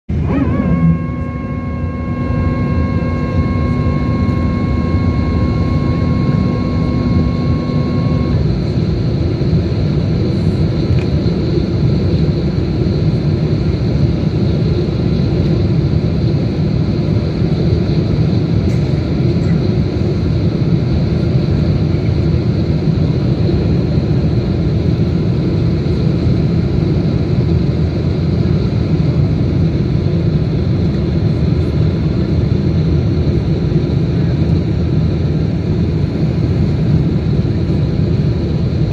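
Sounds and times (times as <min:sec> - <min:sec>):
flap drive whine: 0:00.1 - 0:27.1
airflow rushing in cabin: 0:00.1 - 0:38.9
jet engines: 0:00.1 - 0:38.9.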